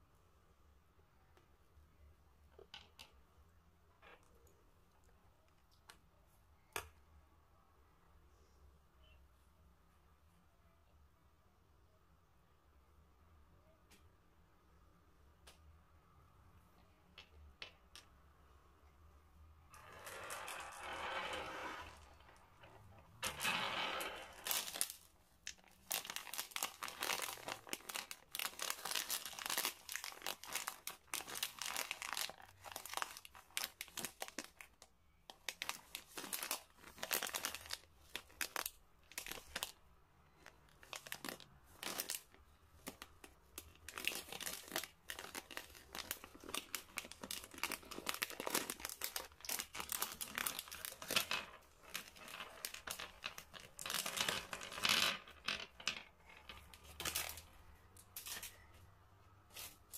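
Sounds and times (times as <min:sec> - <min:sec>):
plastic wrapper crinkling: 0:24.3 - 0:54.8, 0:55.7 - 0:58.6.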